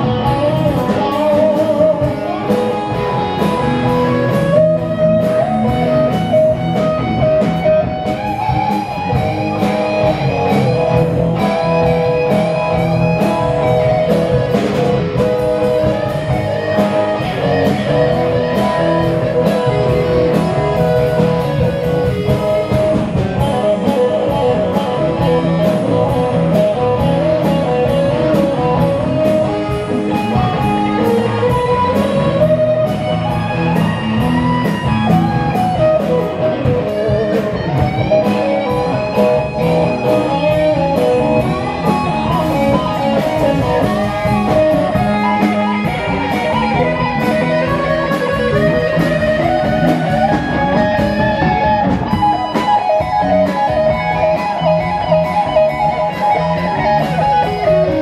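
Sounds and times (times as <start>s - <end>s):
rock band playing instrumental: 0.0s - 58.0s.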